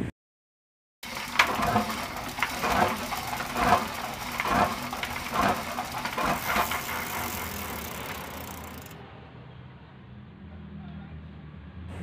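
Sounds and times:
diesel engine running with rattle: 1.0s - 9.0s.

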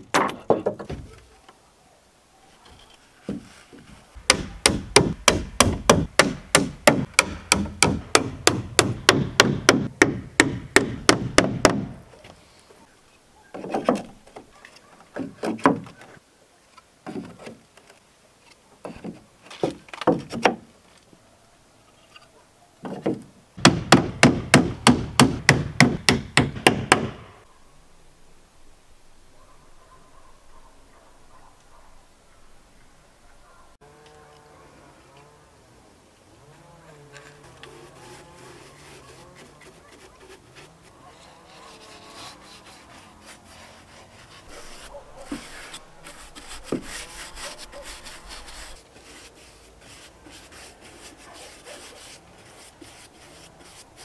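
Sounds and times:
hammer driving nails into wood: 4.3s - 11.9s, 23.0s - 27.3s.

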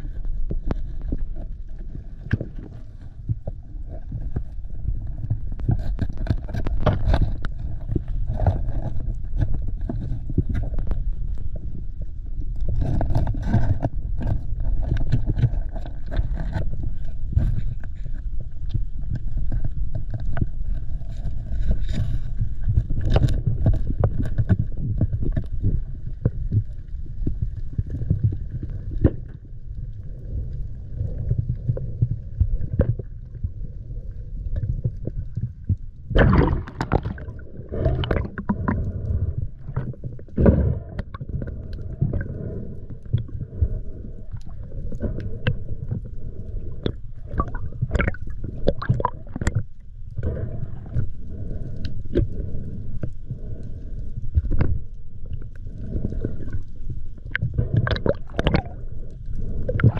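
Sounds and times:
muffled underwater rumble: 0.0s - 59.9s
water gurgling rushes: 36.1s - 38.8s, 47.2s - 49.6s, 57.3s - 59.0s, 59.6s - 59.9s.

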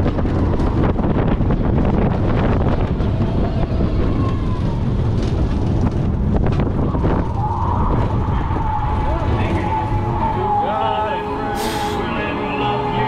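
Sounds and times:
wind rush on microphone: 0.0s - 11.3s
roller coaster train rumbling: 0.0s - 13.0s.

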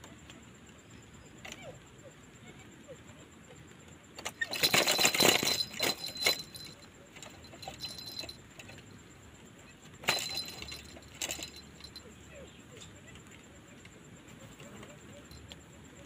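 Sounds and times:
trap cage rattling: 4.2s - 9.1s, 10.0s - 12.0s.

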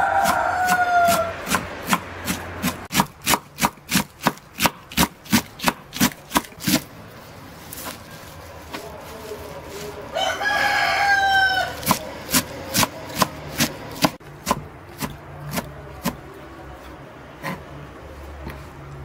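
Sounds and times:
rooster crowing: 0.0s - 1.5s, 10.1s - 12.0s
knife chopping on board: 0.2s - 6.8s, 11.8s - 16.2s.

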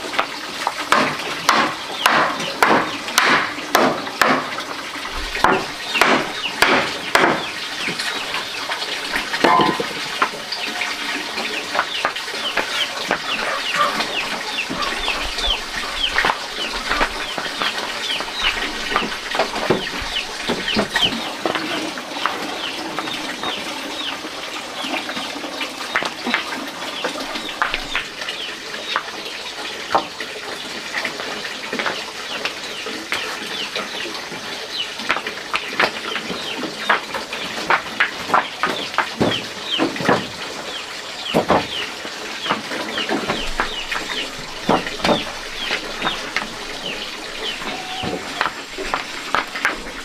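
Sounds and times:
birds chirping: 5.0s - 29.1s, 31.9s - 35.0s, 35.6s - 37.6s, 38.3s - 50.0s
knocks: 5.4s - 7.5s, 9.4s - 10.0s.

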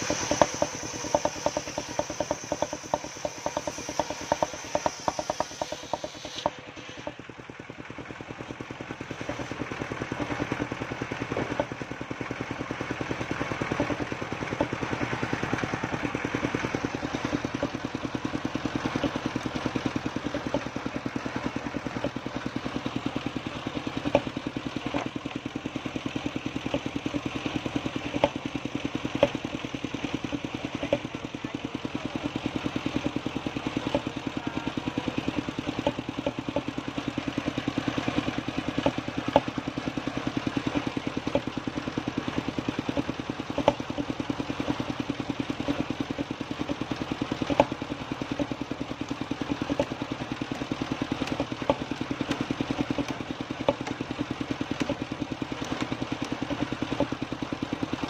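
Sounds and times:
logs knocking on saw table: 0.0s - 7.2s, 29.1s - 29.4s
sawmill engine chugging: 0.0s - 58.0s.

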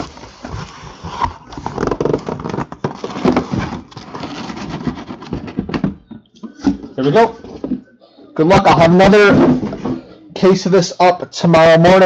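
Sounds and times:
cardboard scraping and rustling: 0.0s - 6.0s.

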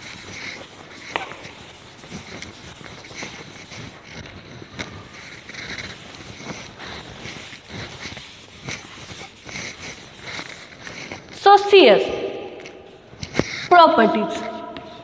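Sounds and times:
duster rubbing on chalkboard: 0.0s - 15.0s.

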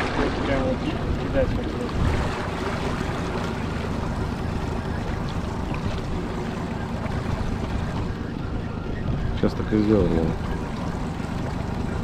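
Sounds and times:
boat motor running: 0.0s - 12.0s
wind noise on microphone: 7.2s - 9.7s.

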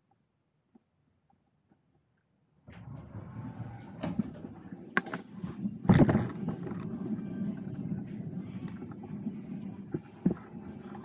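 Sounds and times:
wheelchair wheels rumbling: 2.7s - 11.0s.

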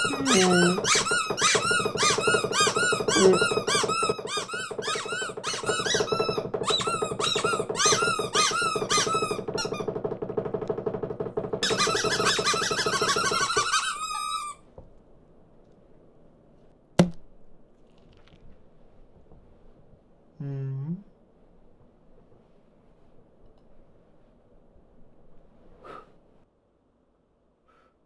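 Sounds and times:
squeaky cartoon bird chirps: 0.0s - 9.8s, 11.6s - 14.6s.

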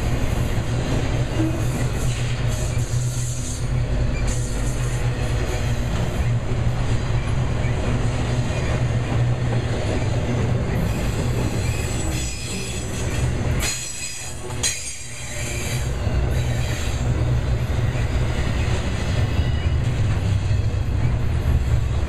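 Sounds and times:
train wheels rumbling on rail: 0.0s - 22.0s
high wheel squeal: 10.8s - 17.2s.

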